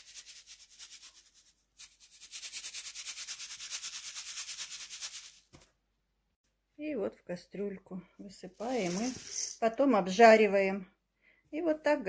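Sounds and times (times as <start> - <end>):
noodles rustling in a shaken sieve: 8.6 - 9.6.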